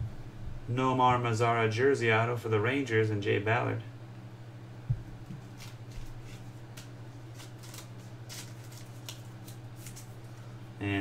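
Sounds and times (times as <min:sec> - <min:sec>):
low steady hum: 0:00.0 - 0:11.0
soft bump: 0:04.8 - 0:06.2
trading cards rustling: 0:05.3 - 0:10.5.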